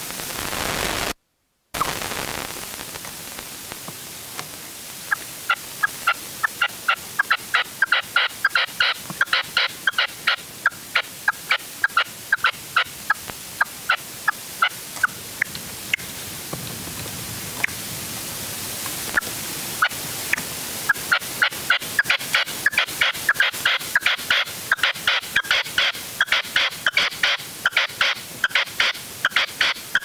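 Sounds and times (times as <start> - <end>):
partridge calling: 5.1 - 16.1, 19.2 - 30.0.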